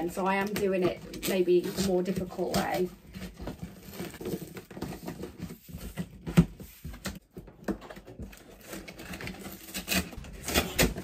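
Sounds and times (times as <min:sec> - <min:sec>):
cardboard box being torn open: 0:08.3 - 0:11.0.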